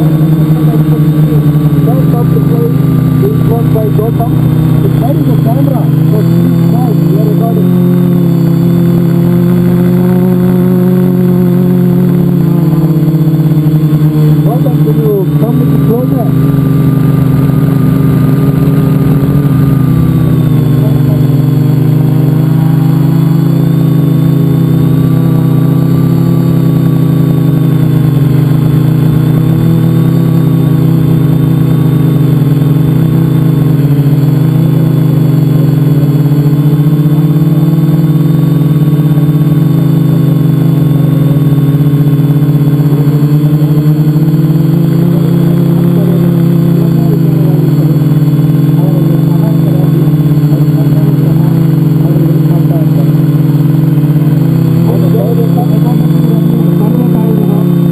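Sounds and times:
drone propellers droning: 0:00.0 - 0:57.9.

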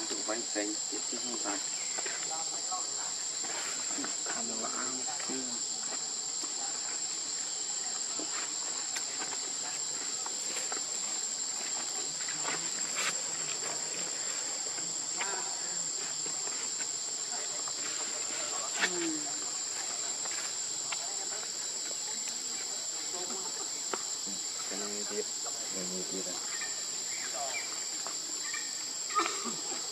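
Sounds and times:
insects droning: 0:00.0 - 0:29.9.

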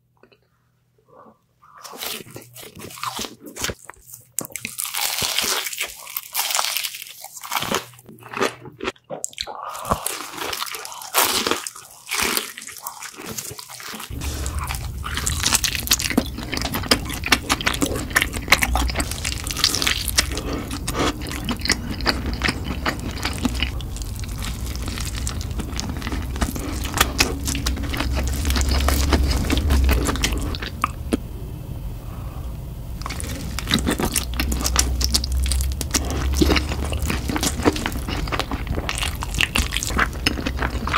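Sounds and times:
crunching and chewing: 0:01.6 - 0:31.2, 0:33.0 - 0:40.9
steady low hum: 0:14.1 - 0:40.9.

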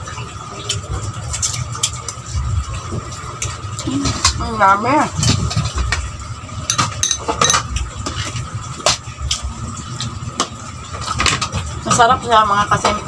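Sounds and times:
metal cutlery clinking on a plate: 0:06.7 - 0:07.7.

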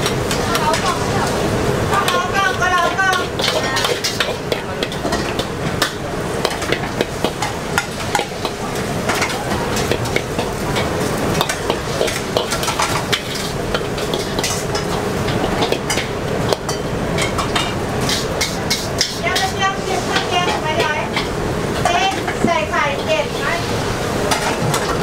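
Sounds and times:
frying sizzle: 0:00.0 - 0:25.0
metal spatula scraping wok: 0:02.0 - 0:25.0.

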